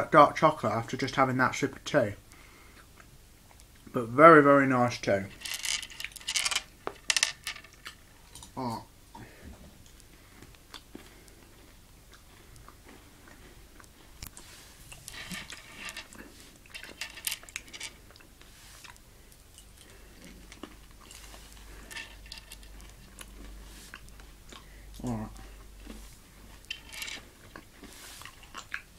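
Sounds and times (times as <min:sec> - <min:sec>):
candies clicking on wooden table: 0:05.4 - 0:07.8
candy crunching and chewing: 0:09.8 - 0:28.9.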